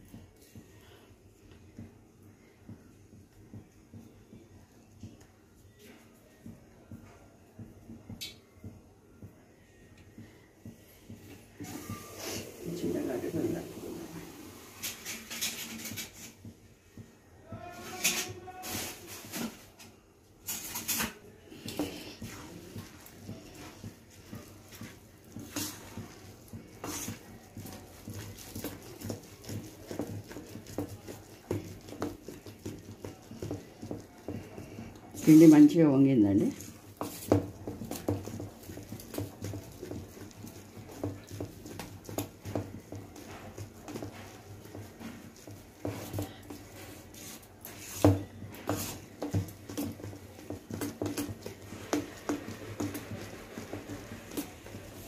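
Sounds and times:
spoon beating batter in metal bowl: 0.0 - 55.0.

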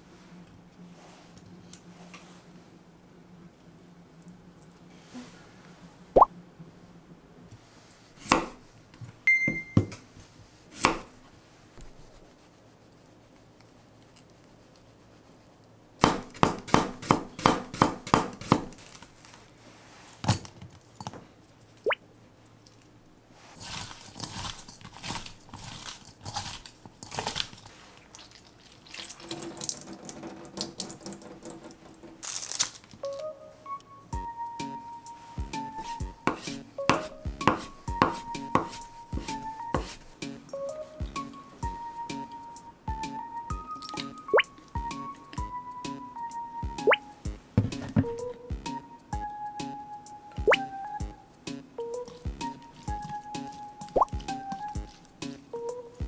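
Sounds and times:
knife chopping on wooden board: 8.2 - 8.6, 10.8 - 11.1, 16.0 - 18.8, 36.2 - 40.0
hands squeezing cucumber slices: 22.8 - 33.2.

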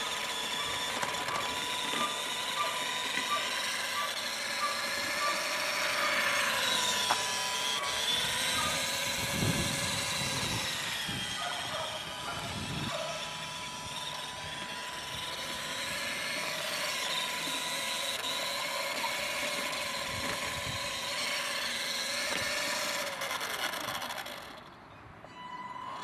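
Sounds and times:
electric motor whine: 0.0 - 26.0.

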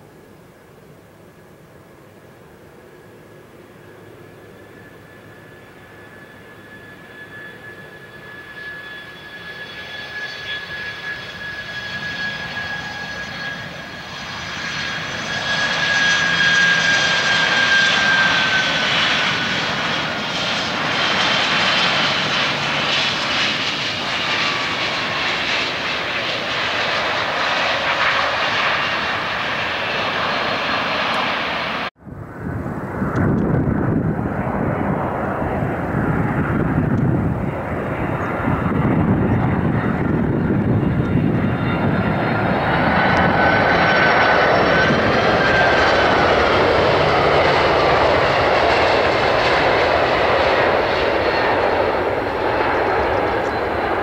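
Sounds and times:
jet engine whine: 0.0 - 54.0
jet engine roar: 1.8 - 54.0
deep jet rumble: 11.1 - 54.0.

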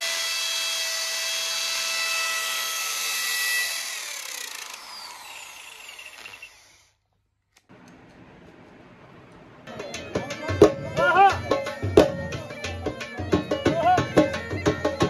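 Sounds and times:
electric drill whining: 0.0 - 7.0.

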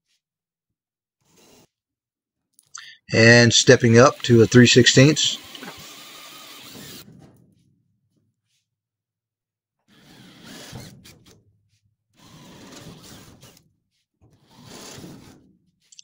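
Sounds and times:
cordless drill drilling steel: 3.6 - 7.0, 9.9 - 11.4, 12.2 - 13.6.

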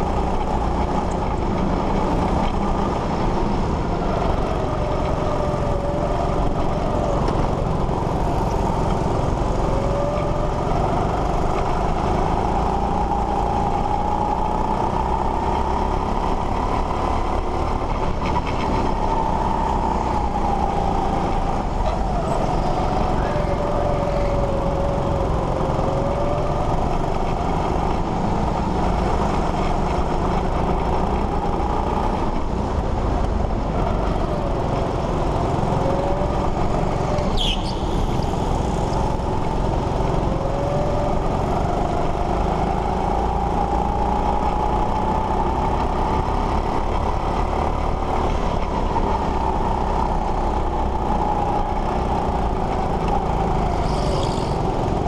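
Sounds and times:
go-kart engine revving: 0.0 - 55.0
high squeal: 37.3 - 38.6, 53.7 - 54.7.

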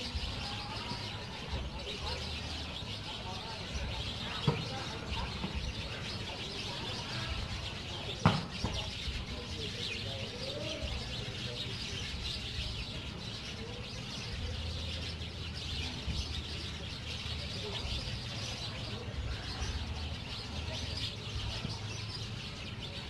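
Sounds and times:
small birds chirping: 0.0 - 23.0
sharp thump: 8.2 - 8.9.

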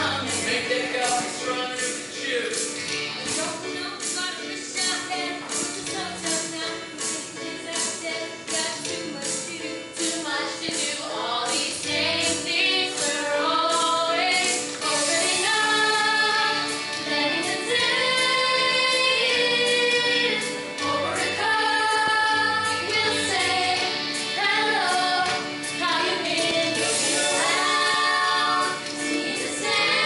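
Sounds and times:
women singing together: 6.4 - 30.0.

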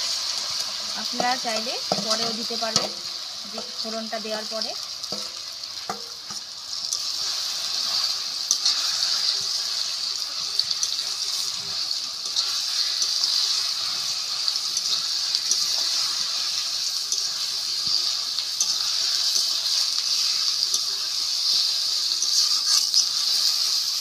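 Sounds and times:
pickle sizzling in oil: 0.0 - 24.0
metal spatula scraping pan: 22.2 - 23.7.

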